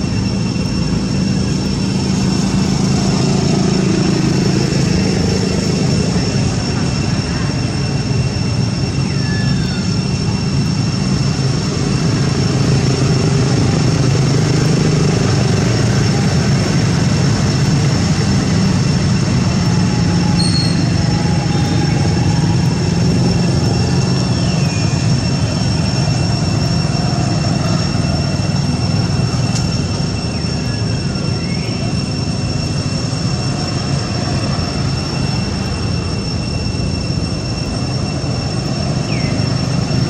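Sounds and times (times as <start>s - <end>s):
high-pitched drone: 0.0s - 40.0s
short high chirps: 20.4s - 21.0s.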